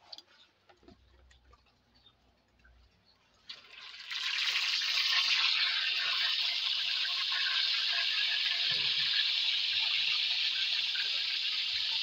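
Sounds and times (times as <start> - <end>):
fish frying in hot oil: 3.5 - 12.0.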